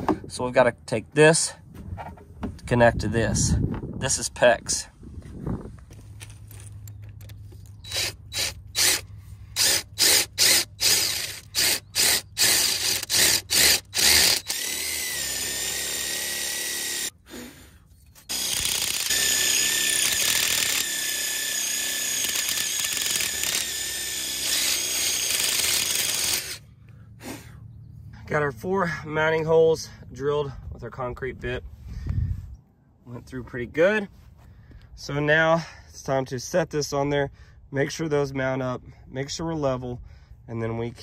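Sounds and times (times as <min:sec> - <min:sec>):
power drill boring into concrete: 0:07.8 - 0:17.1, 0:18.2 - 0:26.6.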